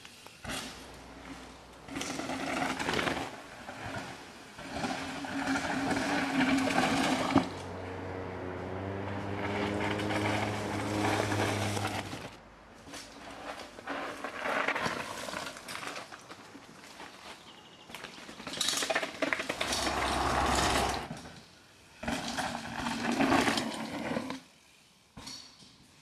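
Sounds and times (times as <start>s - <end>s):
bike tyres crunching over dirt: 0.0s - 24.8s
steady mechanical buzz: 5.7s - 12.4s.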